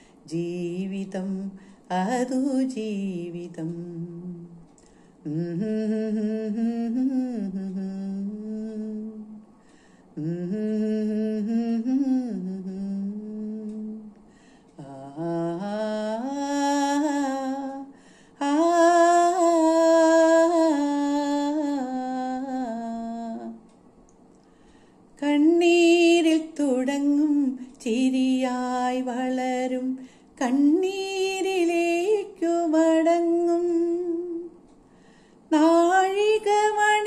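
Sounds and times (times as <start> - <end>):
breaths: 1.6 - 1.9, 4.8 - 5.2, 9.6 - 10.2, 14.2 - 14.8, 17.9 - 18.4, 24.4 - 25.1, 30.0 - 30.4, 34.8 - 35.5
woman humming a melody: 5.3 - 9.4, 10.2 - 14.2, 14.8 - 23.7.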